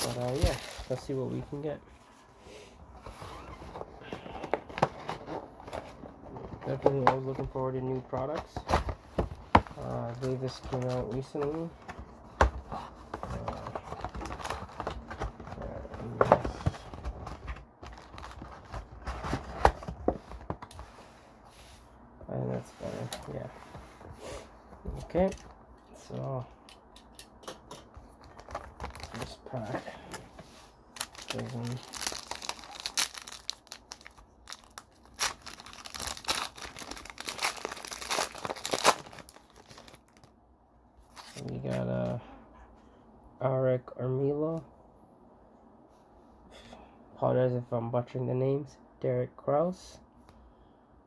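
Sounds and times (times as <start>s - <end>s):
plastic wrapping crinkling: 0.0s - 1.6s, 28.1s - 29.8s, 30.9s - 40.3s.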